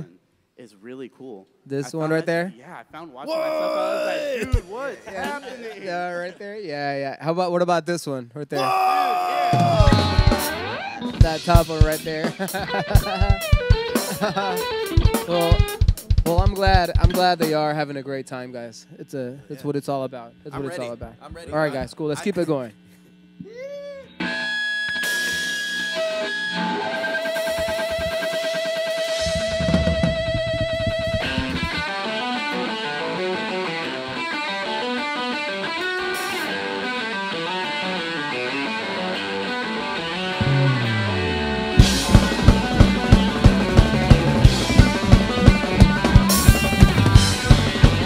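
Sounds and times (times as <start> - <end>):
rock band playing: 4.4 - 5.8, 9.5 - 17.8, 24.2 - 48.0
electric guitar: 9.5 - 17.4, 23.4 - 48.0
kick drum beat: 13.0 - 14.0, 14.9 - 17.1.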